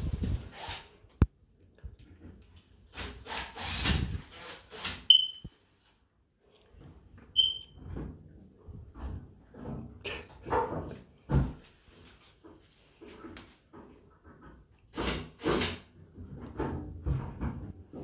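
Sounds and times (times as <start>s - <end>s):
short high beeps: 5.1s - 5.5s.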